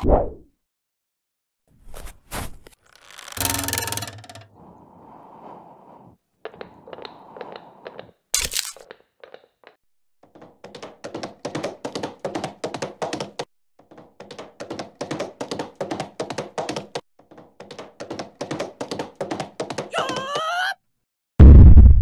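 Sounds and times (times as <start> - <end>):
galloping hoofbeats: 10.3 - 20.1.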